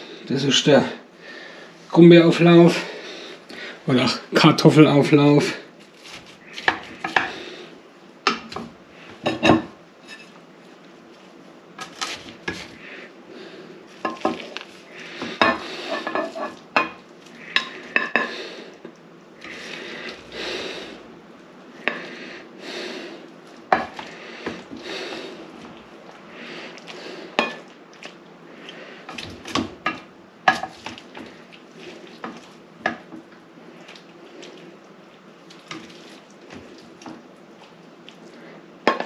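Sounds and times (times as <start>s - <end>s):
metal utensil scraping a dish: 15.4s - 16.6s.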